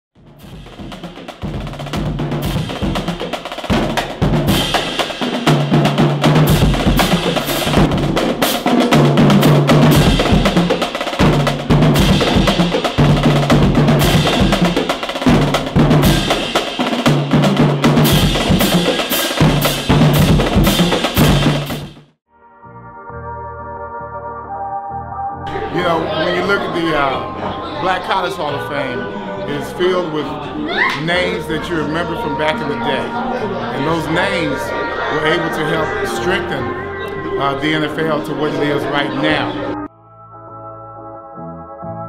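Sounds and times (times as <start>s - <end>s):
drum beat: 0.2s - 22.2s.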